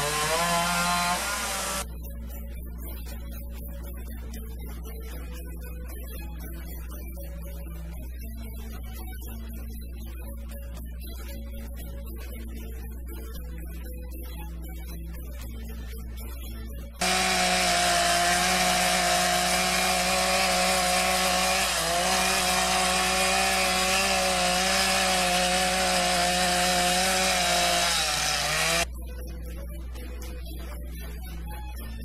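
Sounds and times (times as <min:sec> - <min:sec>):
chainsaw carving wood: 0:00.0 - 0:01.8, 0:17.0 - 0:28.9.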